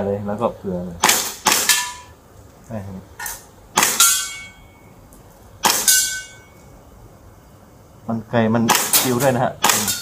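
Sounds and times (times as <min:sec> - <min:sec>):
airsoft pistol shots: 0:01.0 - 0:02.1, 0:03.7 - 0:04.5, 0:05.6 - 0:06.4, 0:08.6 - 0:10.0
short metallic pings: 0:03.8 - 0:05.0, 0:05.6 - 0:06.7.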